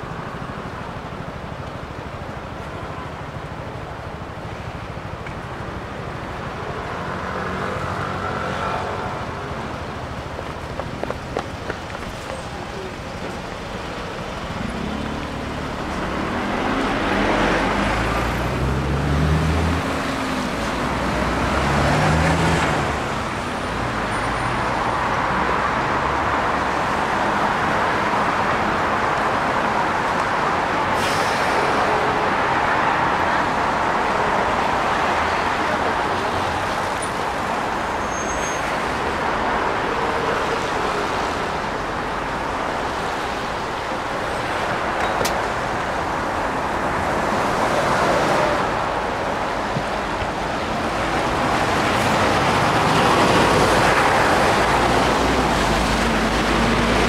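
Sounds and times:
traffic on wet road: 0.0s - 57.0s
buses pulling away: 8.8s - 25.0s, 29.7s - 57.0s.

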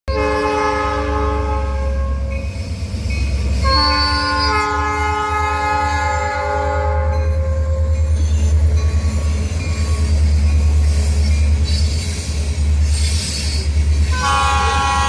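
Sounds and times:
locomotive air horn blasts: 0.1s - 2.3s, 3.6s - 7.8s, 14.1s - 15.0s.

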